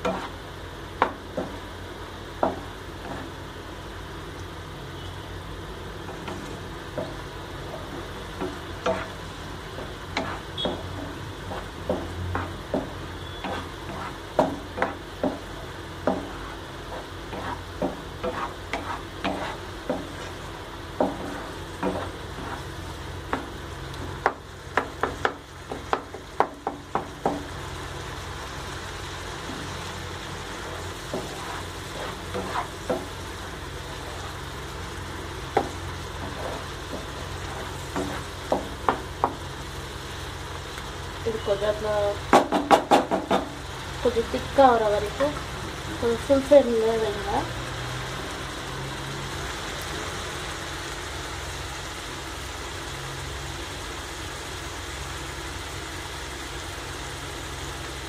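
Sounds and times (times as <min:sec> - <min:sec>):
spatula scraping a pan: 0:00.0 - 0:00.4, 0:06.1 - 0:15.4, 0:16.0 - 0:23.5, 0:30.4 - 0:34.4, 0:35.6 - 0:39.4
food sizzling: 0:00.0 - 0:58.0.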